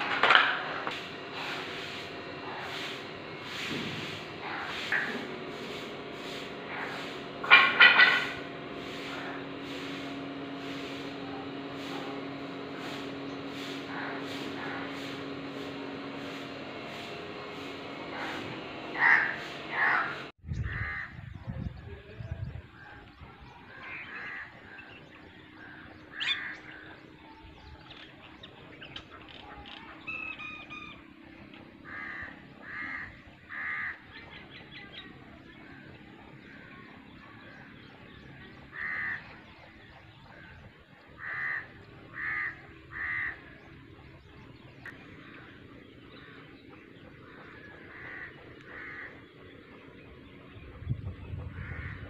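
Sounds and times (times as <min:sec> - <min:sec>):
crows cawing: 0:04.4 - 0:05.2, 0:13.9 - 0:15.0, 0:18.1 - 0:21.2, 0:23.7 - 0:27.0, 0:31.8 - 0:34.4, 0:38.7 - 0:39.4, 0:41.1 - 0:43.7, 0:45.1 - 0:49.7, 0:51.4 - 0:52.0.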